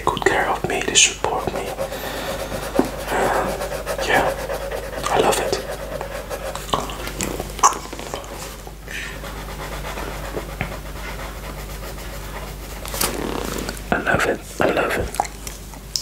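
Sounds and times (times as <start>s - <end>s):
breathing: 1.9s - 2.8s, 8.9s - 9.3s
wet tongue and mouth sounds: 6.5s - 8.4s, 14.6s - 16.0s.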